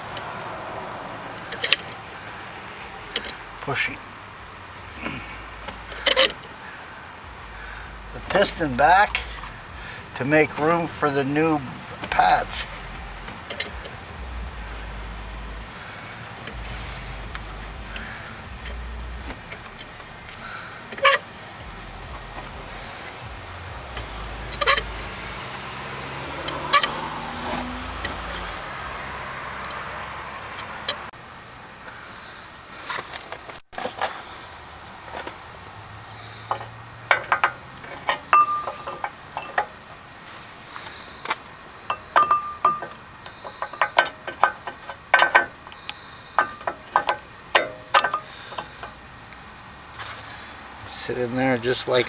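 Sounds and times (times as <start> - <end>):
steady background rumble: 0.0 - 26.0
metallic clicks of brake pad: 1.4 - 2.0, 3.1 - 3.8, 5.0 - 6.6, 8.2 - 14.6, 15.6 - 25.5, 36.2 - 40.0, 40.7 - 50.3
sharp metallic clicks: 40.8 - 49.4.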